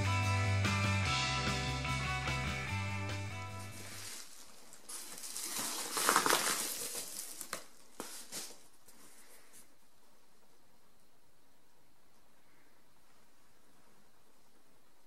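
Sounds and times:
paper mailer crinkling: 3.5s - 8.8s.

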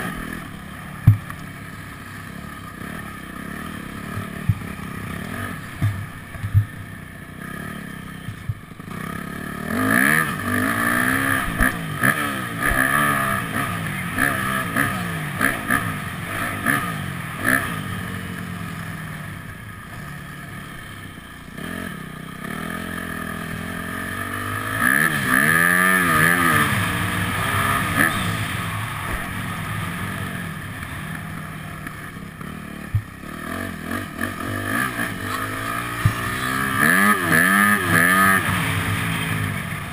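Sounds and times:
dirt bike engine revving: 0.0s - 39.9s
sharp knocks and clicks: 5.8s - 6.8s.

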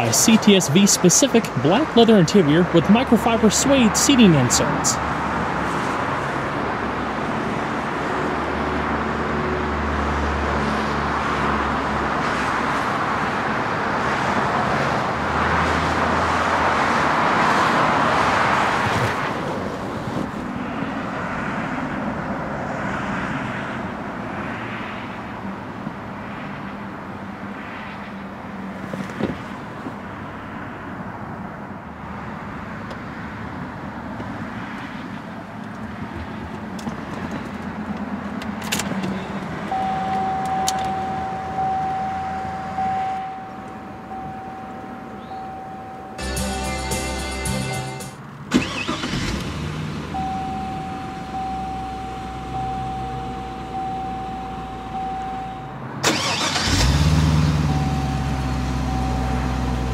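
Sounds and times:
car engine idling: 48.4s - 59.9s.

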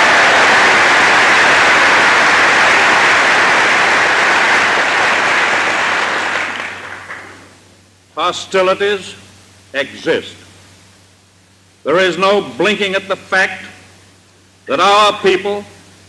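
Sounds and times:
large audience applauding: 0.0s - 7.5s
recording hiss: 0.0s - 16.0s.

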